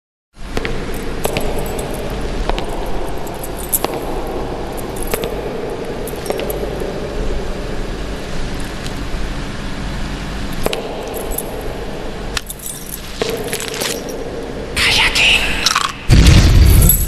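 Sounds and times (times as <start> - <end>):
steady low hum: 0.4 - 17.0
light clicks and clinks: 0.9 - 6.9, 12.4 - 14.5.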